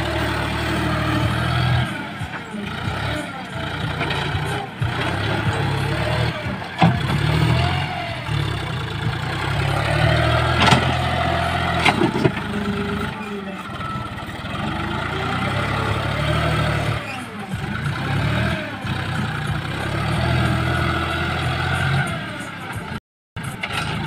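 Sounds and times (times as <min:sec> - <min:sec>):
tractor diesel engine running: 0:00.0 - 0:24.0
loader bucket clunks: 0:02.2 - 0:18.2.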